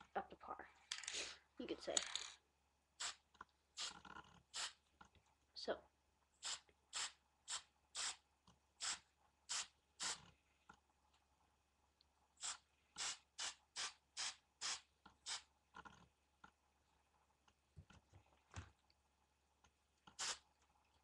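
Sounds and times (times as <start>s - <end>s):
spray can hissing in bursts: 3.0s - 3.2s, 3.8s - 4.8s, 6.4s - 8.2s, 8.8s - 10.2s, 12.4s - 15.4s, 20.2s - 20.4s.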